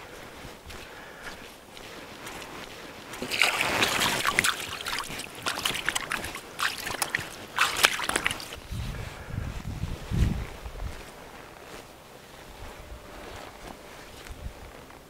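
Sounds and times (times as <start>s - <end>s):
water splashing and sloshing: 2.2s - 8.8s
loud water rush: 3.2s - 8.6s.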